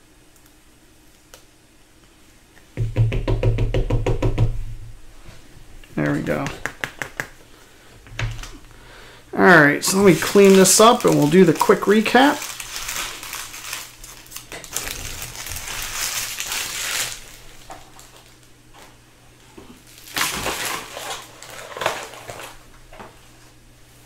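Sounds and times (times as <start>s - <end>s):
foil wrappers crumpling: 9.8s - 18.9s, 19.8s - 22.8s.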